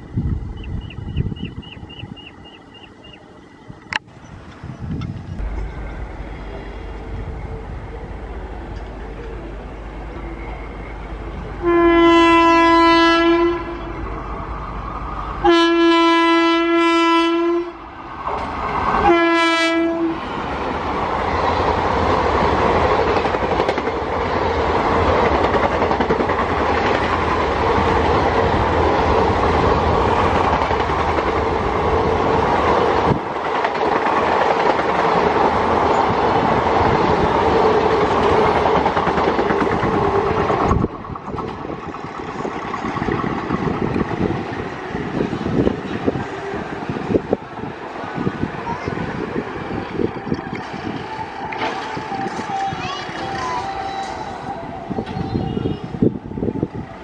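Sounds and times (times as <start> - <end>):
train wheels roaring and clacking: 0.0 - 57.0
locomotive horn blasts: 11.6 - 14.2, 15.4 - 17.9, 19.0 - 20.2.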